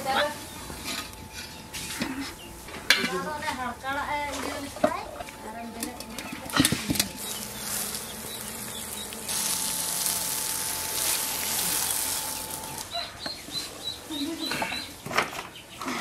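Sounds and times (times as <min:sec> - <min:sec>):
birds chirping: 0:00.0 - 0:16.0
cooking pot clanking: 0:04.4 - 0:07.4
water hissing on wet soil: 0:07.2 - 0:12.8.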